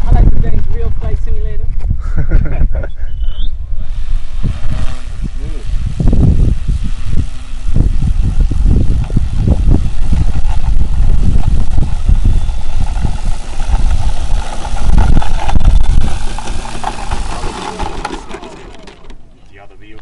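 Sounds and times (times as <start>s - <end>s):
wind buffeting microphone: 0.0s - 20.0s
model airplane motor and propeller: 3.8s - 20.0s.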